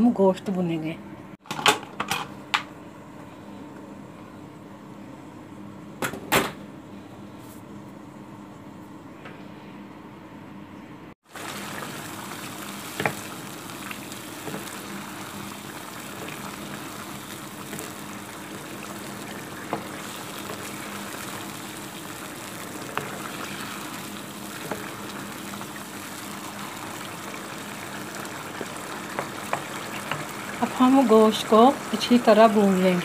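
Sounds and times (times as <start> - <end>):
meat sizzling in a frying pan: 11.2 - 33.0.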